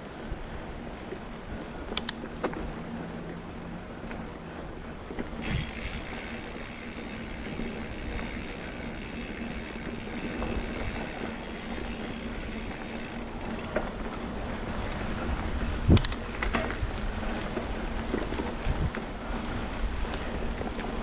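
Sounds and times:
electric motor and gears whining: 5.2s - 13.4s.

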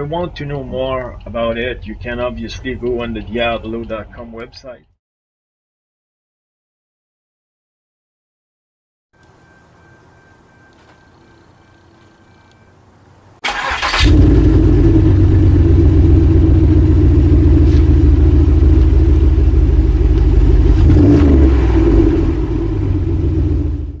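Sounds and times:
car engine cranking: 10.7s - 23.7s
car engine running loud: 13.6s - 24.0s.

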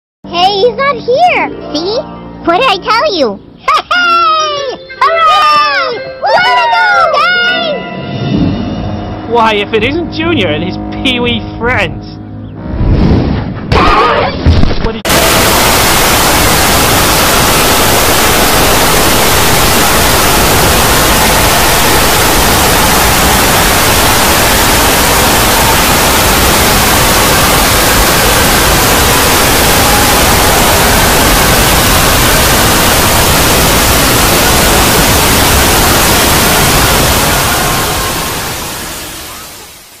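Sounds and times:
loud static-like hiss: 14.6s - 40.0s.

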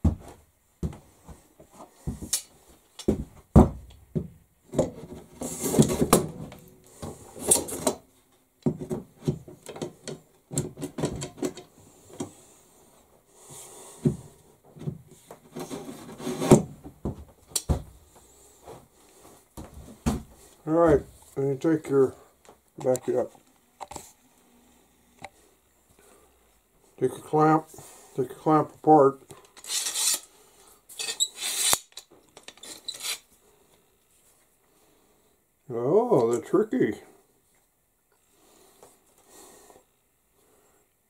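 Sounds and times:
knocks and clunks on wooden bench: 0.0s - 1.4s, 3.0s - 7.2s, 8.6s - 12.3s, 16.4s - 18.0s, 19.6s - 21.2s
metal rod scraping in benchtop: 29.6s - 30.3s, 30.9s - 33.3s.

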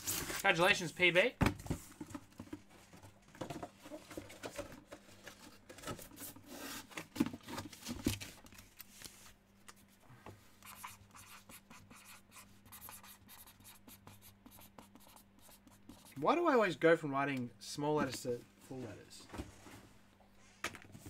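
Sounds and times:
pen scratching on paper: 10.6s - 16.2s.

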